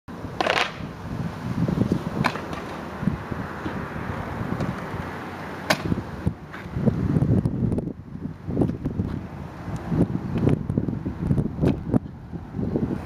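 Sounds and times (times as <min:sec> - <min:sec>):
scooter wheels rolling on asphalt: 0:00.1 - 0:13.0
scooter clacks: 0:00.4 - 0:00.8, 0:02.2 - 0:02.8.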